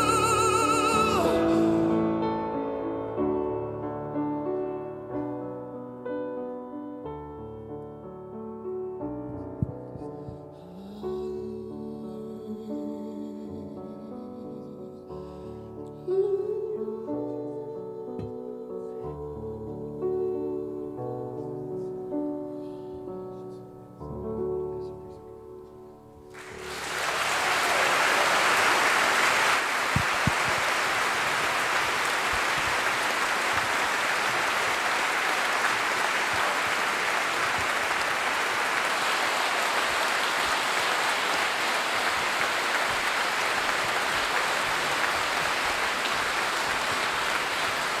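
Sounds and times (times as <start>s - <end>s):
audience applauding: 0.0s - 1.7s, 26.3s - 48.0s.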